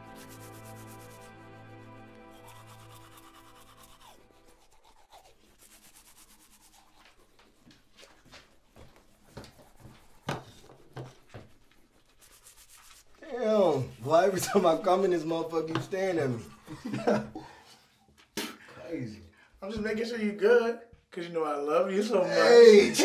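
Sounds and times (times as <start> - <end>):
toothbrush scrubbing teeth: 0.0 - 15.0.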